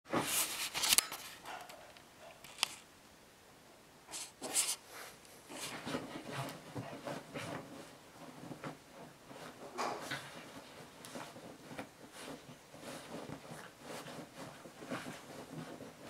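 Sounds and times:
dog claws scratching blanket: 0:04.1 - 0:04.8, 0:05.5 - 0:16.0.

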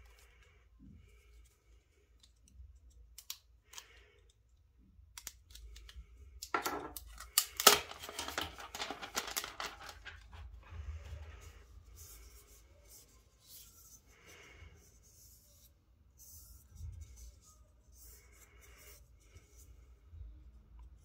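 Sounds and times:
plastic crinkling and rustling: 0:07.0 - 0:10.6.

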